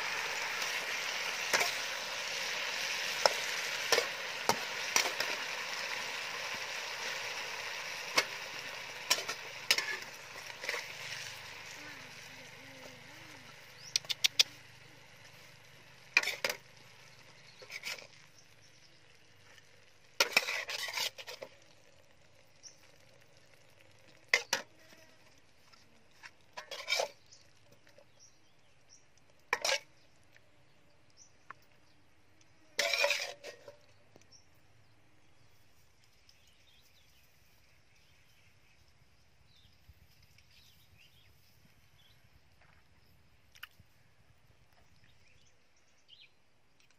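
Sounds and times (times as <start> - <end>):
metal spatula scraping wok: 0.0 - 18.5, 19.6 - 21.8, 24.3 - 24.7, 26.1 - 27.4, 29.5 - 30.0, 32.8 - 34.0
faint sizzle: 0.0 - 43.2.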